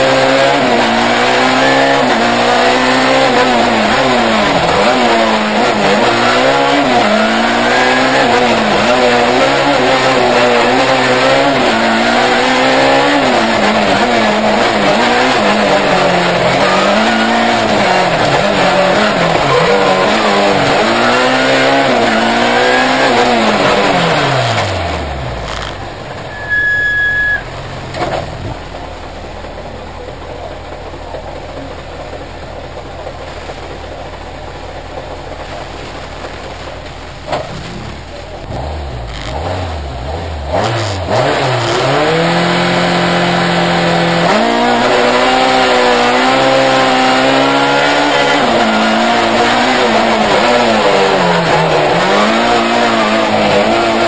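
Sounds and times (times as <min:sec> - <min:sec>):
car engine revving: 0:00.0 - 0:54.0
short high beep: 0:26.2 - 0:27.6.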